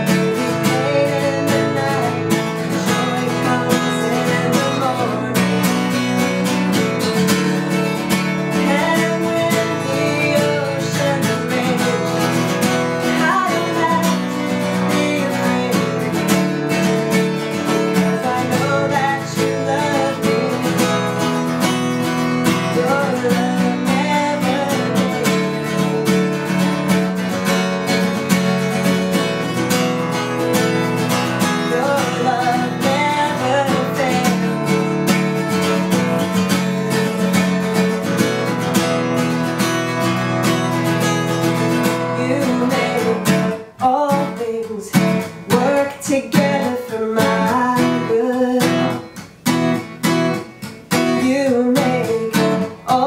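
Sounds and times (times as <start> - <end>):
woman singing: 0.0 - 26.5, 30.9 - 36.0, 41.8 - 49.2, 51.0 - 53.0
acoustic guitar strummed: 0.0 - 53.0.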